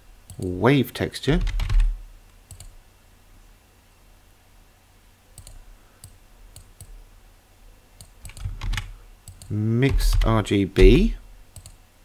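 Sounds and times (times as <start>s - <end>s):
room noise hum: 0.0s - 12.0s
computer mouse clicks: 1.4s - 2.8s, 5.4s - 7.0s, 8.0s - 11.8s.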